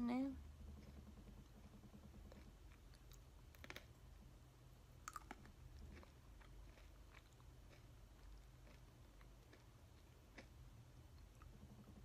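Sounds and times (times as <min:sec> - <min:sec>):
chewing clicks: 0:05.1 - 0:10.5.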